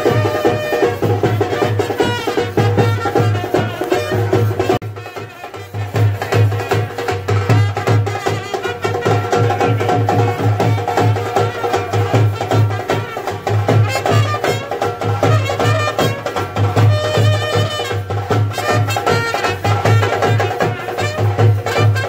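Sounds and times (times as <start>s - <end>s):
brass band playing: 0.0s - 22.0s
steady drum beat: 0.0s - 22.0s.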